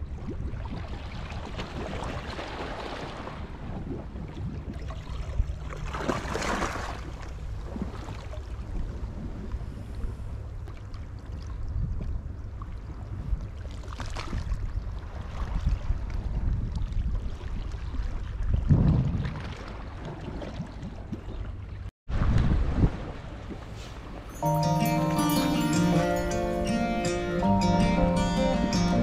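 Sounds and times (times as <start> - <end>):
wind rumbling on microphone: 0.0 - 5.7, 14.3 - 21.2, 22.1 - 24.3.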